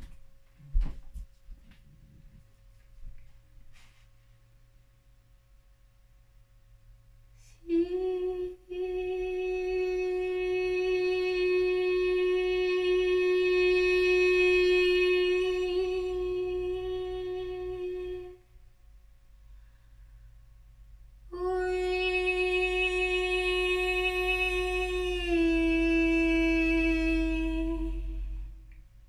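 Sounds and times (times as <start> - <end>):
woman singing a long steady note: 7.4 - 18.7, 21.2 - 28.8.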